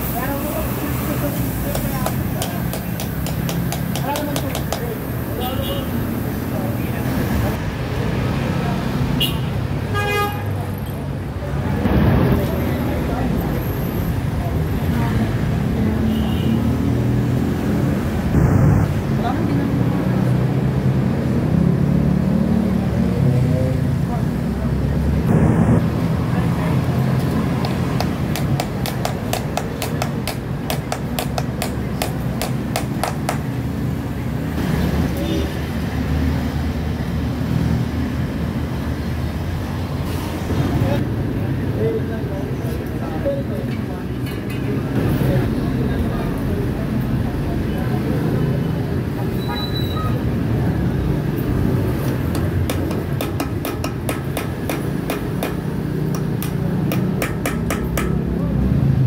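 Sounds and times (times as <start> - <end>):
hammer tapping metal: 1.7 - 4.9, 27.6 - 33.5, 52.1 - 58.3.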